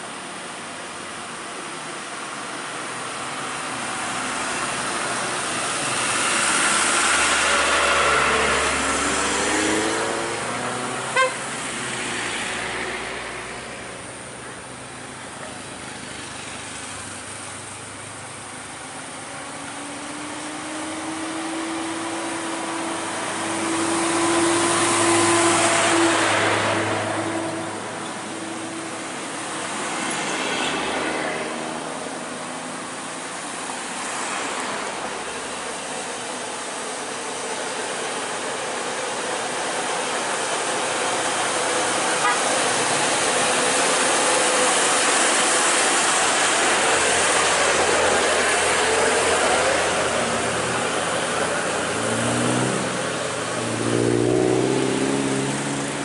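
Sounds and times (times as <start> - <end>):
heavy vehicle engine: 0.0 - 56.0
road traffic passing: 0.0 - 56.0
short sharp horn toot: 11.1 - 11.4, 42.2 - 42.5.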